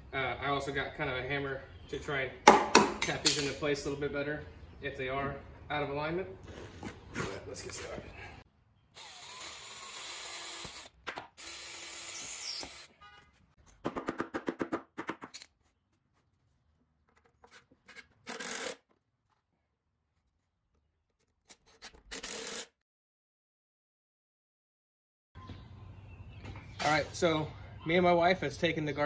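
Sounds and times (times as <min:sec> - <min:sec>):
cordless drill whirring: 0:09.0 - 0:12.9.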